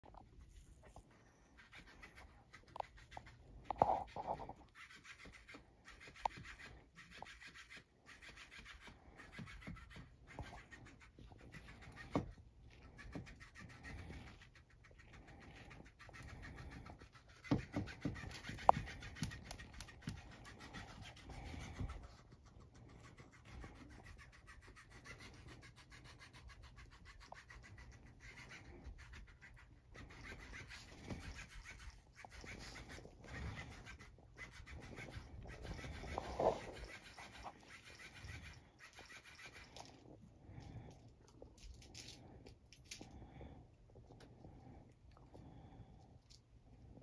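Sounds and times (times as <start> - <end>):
paws scrabbling on toy: 0.0 - 44.8.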